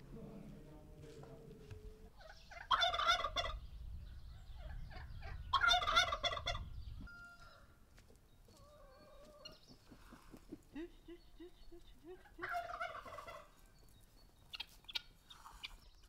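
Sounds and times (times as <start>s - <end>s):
turkey gobbling: 2.1s - 3.6s, 4.6s - 7.6s, 8.6s - 13.6s, 14.5s - 15.8s.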